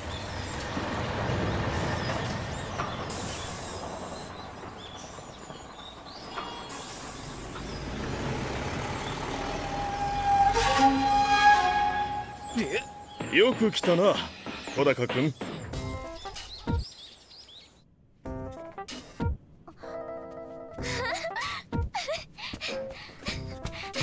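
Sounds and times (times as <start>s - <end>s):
bus engine rumbling: 0.0s - 14.4s
compressed air hissing: 3.0s - 4.3s, 6.7s - 7.8s.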